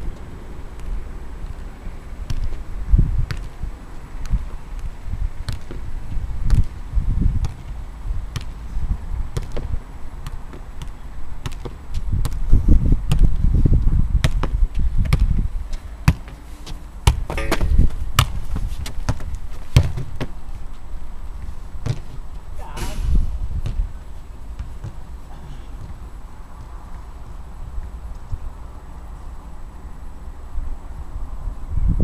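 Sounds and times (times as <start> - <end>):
wind rumbling on microphone: 0.0 - 16.2, 16.8 - 29.0, 29.6 - 32.0
football being kicked: 14.2 - 15.3, 16.0 - 16.3, 17.0 - 20.4, 21.8 - 22.1.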